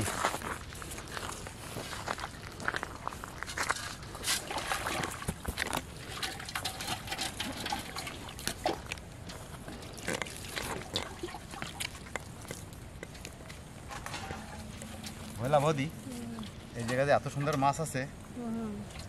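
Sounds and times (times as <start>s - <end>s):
water splashing and trickling: 3.4s - 18.1s.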